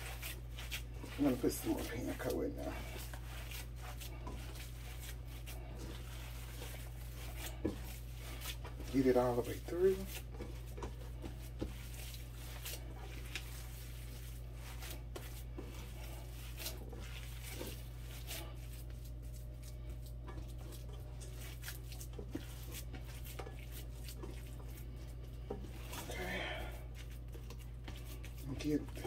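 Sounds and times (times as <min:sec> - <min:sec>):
hands squishing meat mixture: 0:00.0 - 0:29.0
steady low hum: 0:00.0 - 0:29.0.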